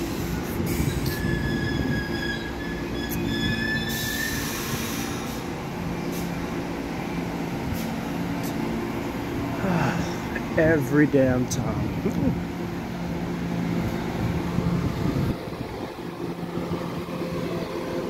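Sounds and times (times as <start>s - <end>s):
high wheel squeal: 0.0s - 6.3s
subway train rumble: 0.0s - 18.0s.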